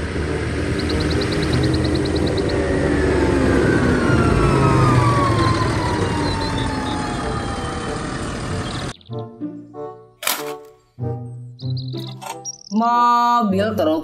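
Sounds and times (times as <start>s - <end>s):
music: 0.0s - 2.4s, 7.2s - 14.0s
engine whine: 0.0s - 9.0s
tractor diesel engine running: 0.0s - 9.1s, 10.2s - 10.7s, 12.0s - 12.6s.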